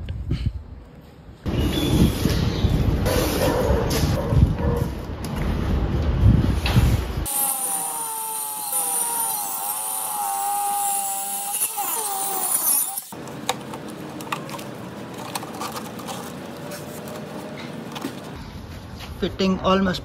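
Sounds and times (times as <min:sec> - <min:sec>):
angle grinder cutting wood: 0:07.3 - 0:13.2.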